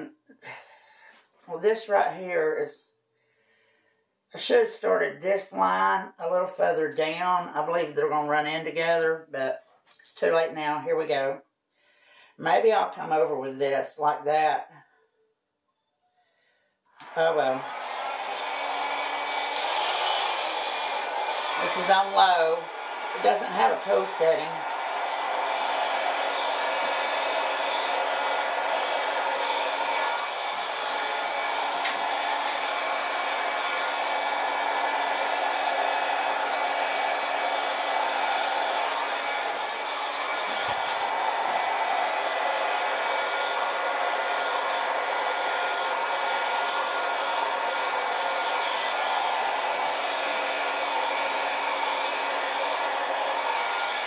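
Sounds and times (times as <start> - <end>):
hair dryer running: 17.0 - 54.0.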